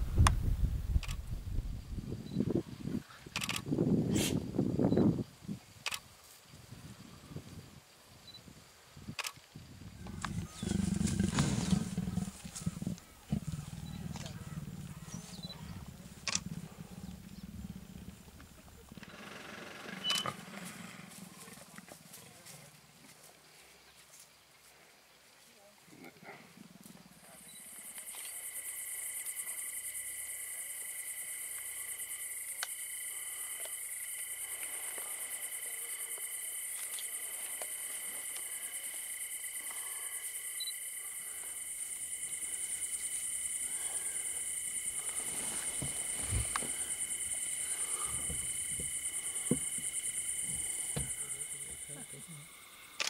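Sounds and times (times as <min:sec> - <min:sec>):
insects chirring: 0:01.0 - 0:22.5, 0:26.8 - 0:53.0
sharp clicks: 0:03.4 - 0:03.6, 0:05.8 - 0:06.0, 0:09.2 - 0:09.4
low knocks and thuds: 0:45.6 - 0:46.9.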